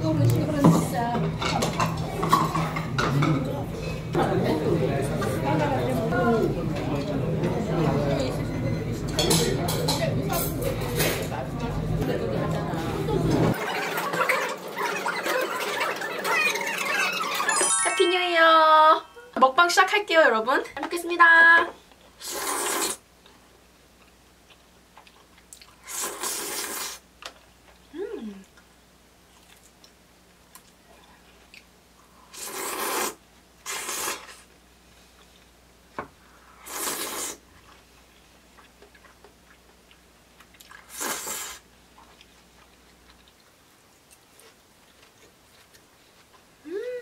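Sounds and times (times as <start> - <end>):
noodles slurped loudly: 22.2 - 23.0, 25.8 - 27.0, 40.8 - 41.6
wet noodle slurp: 22.2 - 23.0, 25.8 - 27.0, 32.3 - 34.5, 36.6 - 37.4, 40.7 - 41.6
quiet chewing: 23.2 - 32.2, 36.7 - 46.7.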